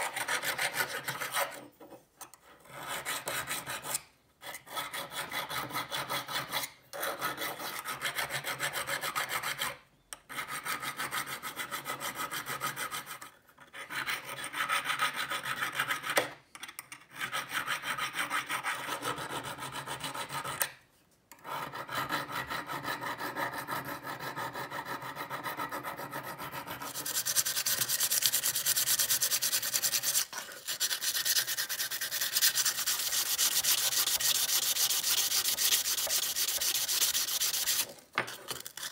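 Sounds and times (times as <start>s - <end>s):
file rasping on steel: 0.0s - 1.7s, 2.4s - 16.2s, 17.2s - 20.7s, 21.4s - 38.9s
abrasive paper scratching: 26.5s - 38.9s.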